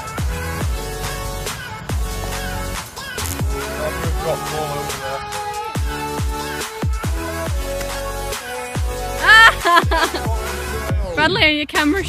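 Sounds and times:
deep bass hits: 0:00.2 - 0:09.2
synth chords: 0:00.3 - 0:10.9.

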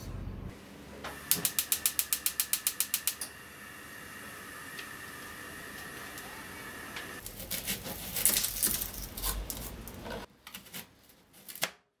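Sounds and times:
gas flame hissing: 0:00.5 - 0:07.2.

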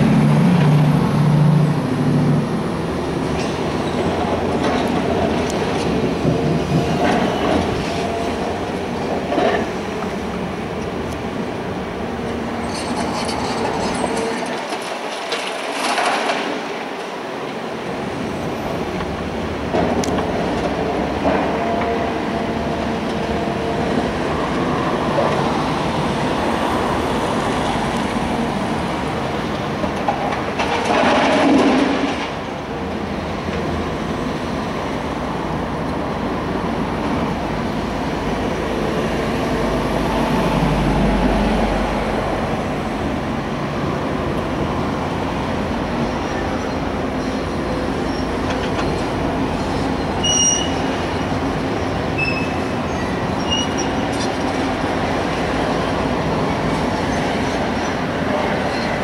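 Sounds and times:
heavy machinery rumble: 0:00.0 - 0:16.8, 0:19.2 - 0:32.6
traffic: 0:00.0 - 0:59.0.

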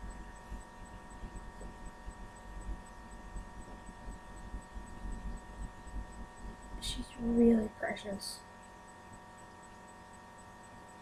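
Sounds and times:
faint low rumble: 0:00.0 - 0:08.5
electrical hum: 0:00.0 - 0:11.0.

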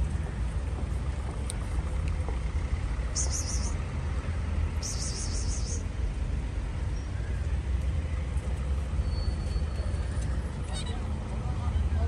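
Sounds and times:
road traffic rumble: 0:00.0 - 0:12.0
high warbling chirp: 0:03.1 - 0:03.8, 0:04.8 - 0:05.8.

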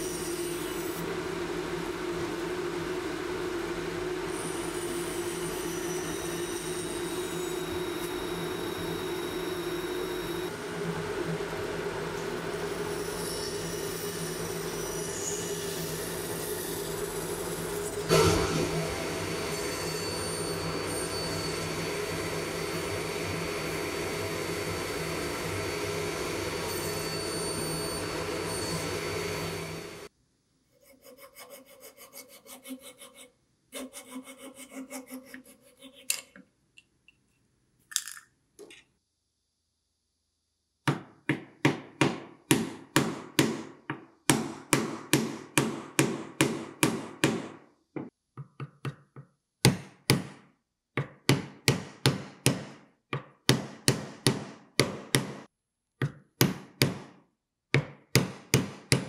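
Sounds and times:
table saw running: 0:00.0 - 0:30.1.

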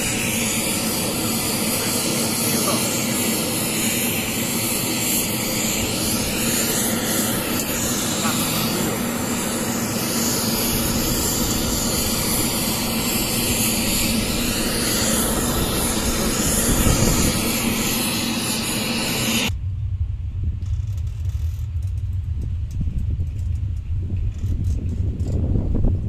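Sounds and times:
loud hiss-like test noise: 0:00.0 - 0:26.0
deep sub-bass rumble: 0:19.5 - 0:26.0.

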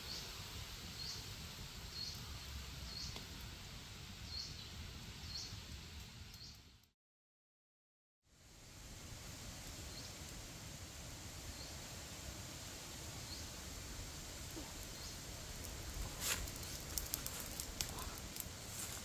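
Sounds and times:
steady low hiss: 0:00.0 - 0:06.9, 0:08.3 - 0:19.0
footsteps through dry leaves: 0:15.8 - 0:19.0.

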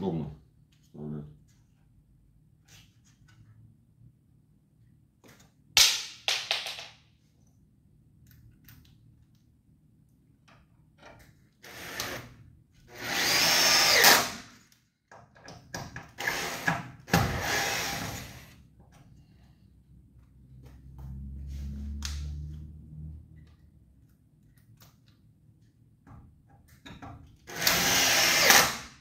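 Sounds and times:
cordless drill driving screws: 0:11.6 - 0:12.3, 0:12.9 - 0:14.4, 0:16.2 - 0:18.5, 0:27.5 - 0:28.9.

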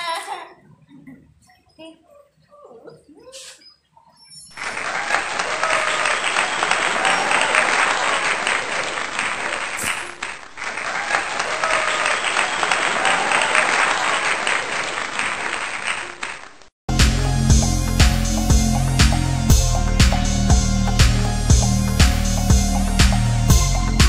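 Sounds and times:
crowd cheering: 0:04.6 - 0:16.4
crowd clapping: 0:04.6 - 0:17.2.

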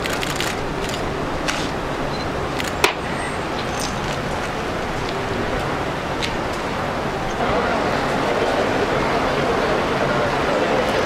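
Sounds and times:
outdoor gathering background noise: 0:00.0 - 0:11.0
sharp crack: 0:02.6 - 0:03.1.

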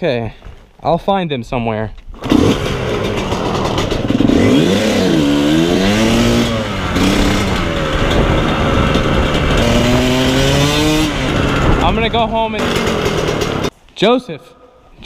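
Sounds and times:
dirt bike engine revving: 0:02.2 - 0:13.7.

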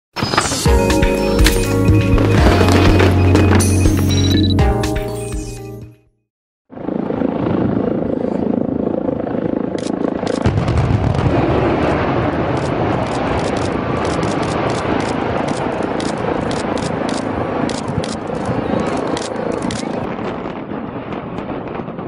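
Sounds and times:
detonation cracks: 0:10.3 - 0:22.0
building collapsing rumble: 0:10.4 - 0:16.4.

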